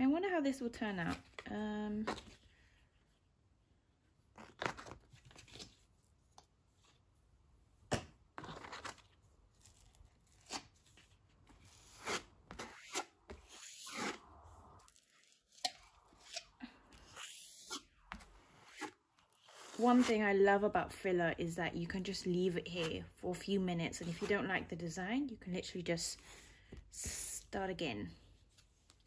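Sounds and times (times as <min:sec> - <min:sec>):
filler knife scraping canvas: 0:08.4 - 0:20.2.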